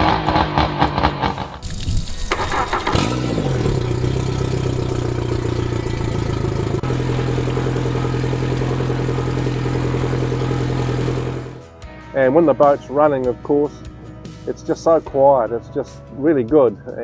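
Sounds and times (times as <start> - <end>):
outboard engine revving and idling: 2.2 - 11.6.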